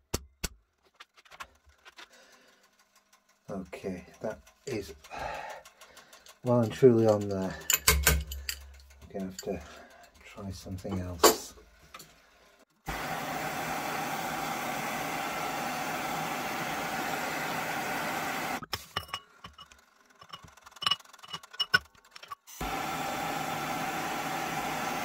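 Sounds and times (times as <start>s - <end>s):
blowtorch hissing: 12.8s - 18.6s, 22.5s - 25.0s.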